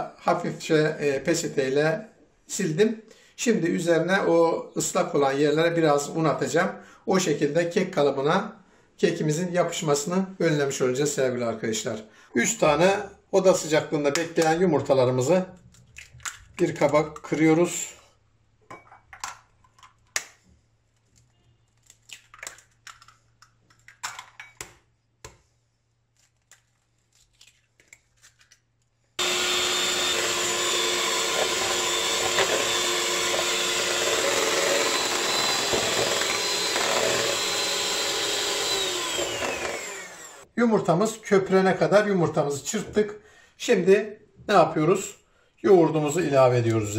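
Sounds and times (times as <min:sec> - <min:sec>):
eggs cracking on bowl rim: 0:21.9 - 0:24.8
electric hand mixer whisking eggs: 0:29.2 - 0:40.5.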